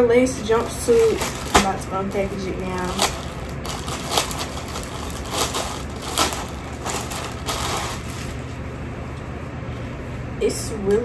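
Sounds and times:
plastic bag crinkling: 0.4s - 8.6s.

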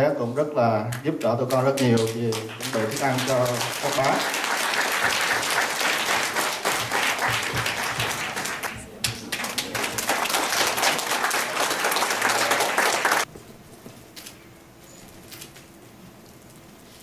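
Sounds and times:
audience applauding: 1.8s - 13.3s.

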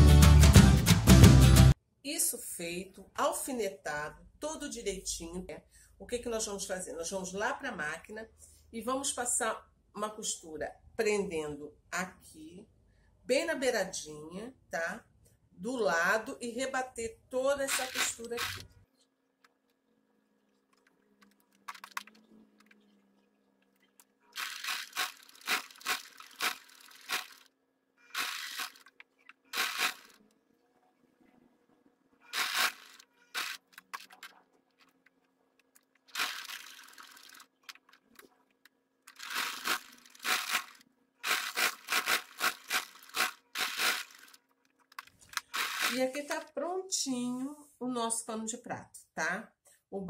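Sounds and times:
sewing machine stitching: 17.6s - 18.7s, 24.4s - 30.2s, 32.2s - 34.4s, 36.1s - 37.6s, 39.1s - 44.4s, 45.2s - 46.2s.

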